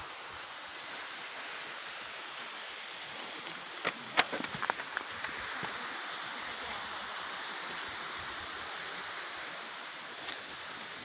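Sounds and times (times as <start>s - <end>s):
waterfall rushing water: 0.0s - 11.0s.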